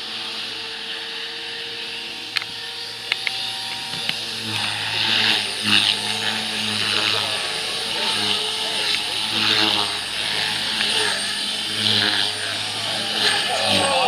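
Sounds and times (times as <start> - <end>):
model helicopter rotor drone: 0.0 - 14.0
sharp clicks: 2.3 - 4.2.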